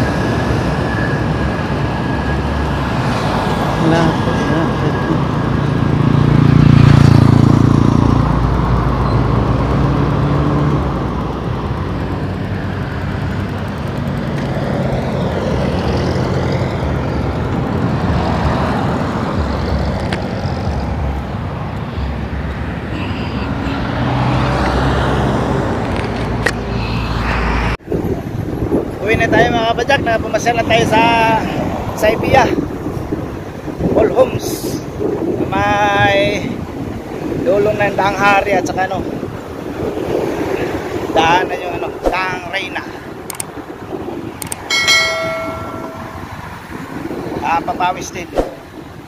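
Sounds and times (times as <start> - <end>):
heavy vehicle engine passing: 0.0 - 28.5, 44.6 - 47.4
road traffic passing: 0.0 - 49.0.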